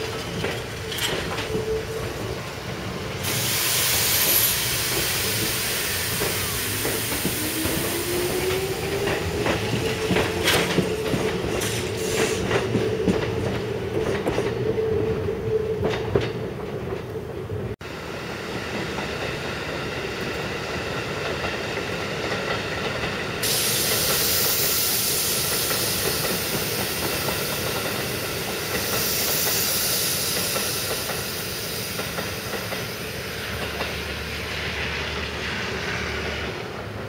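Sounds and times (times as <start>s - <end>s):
train wheels rumbling on rail: 0.0s - 37.0s
loud hiss: 3.1s - 9.3s, 23.4s - 36.4s.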